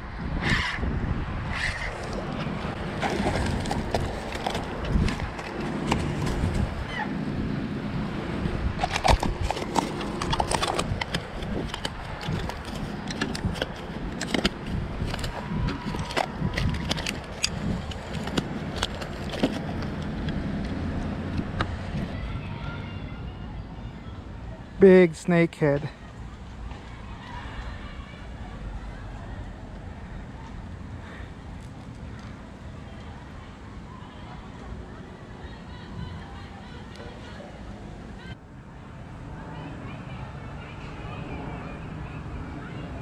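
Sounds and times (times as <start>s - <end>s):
fish flopping on grass: 2.8s - 6.7s.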